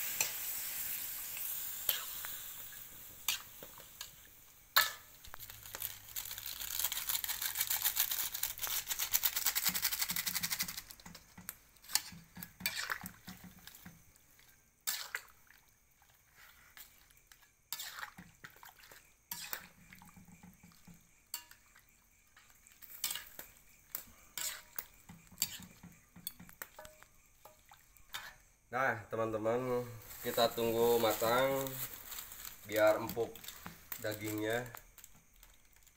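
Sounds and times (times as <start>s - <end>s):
broth sizzling and bubbling: 0.0s - 28.6s.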